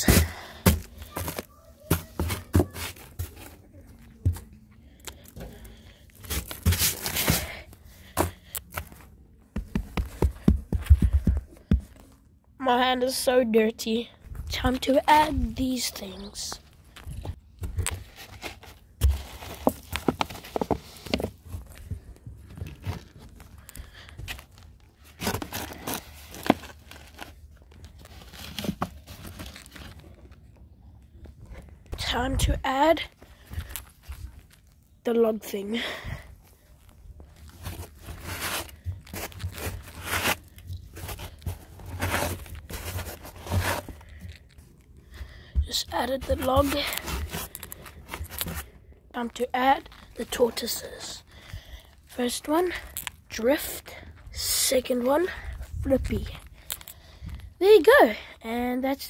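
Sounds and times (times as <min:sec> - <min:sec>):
plastic pots scraping into soil: 0:05.6 - 0:08.8, 0:37.4 - 0:44.6, 0:45.6 - 0:48.8.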